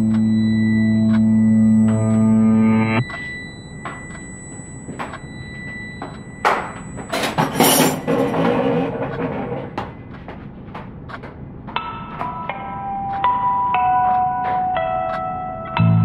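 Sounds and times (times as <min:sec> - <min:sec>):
sharp knocks and clinks: 0:06.0 - 0:10.1.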